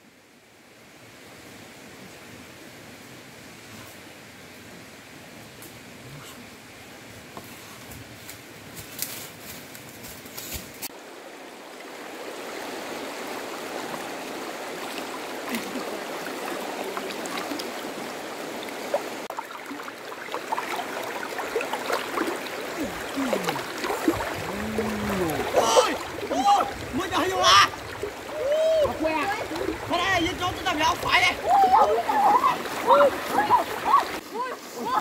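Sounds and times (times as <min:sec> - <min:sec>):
river water babbling: 0:00.0 - 0:07.4, 0:10.9 - 0:35.0
footsteps in dry leaves: 0:08.4 - 0:10.9
small water splashes: 0:10.9 - 0:35.0.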